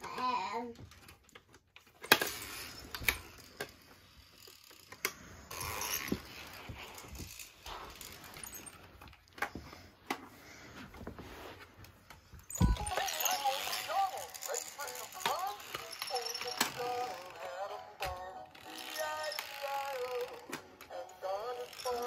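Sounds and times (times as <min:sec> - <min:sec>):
toy pieces knocking and clicking: 0:12.5 - 0:17.4.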